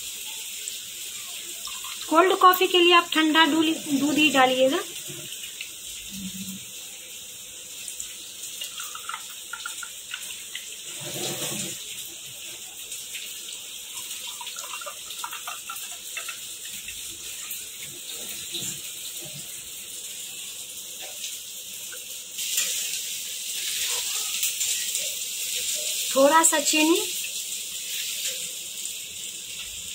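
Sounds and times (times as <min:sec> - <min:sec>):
milk pouring into mugs: 0:08.3 - 0:19.7.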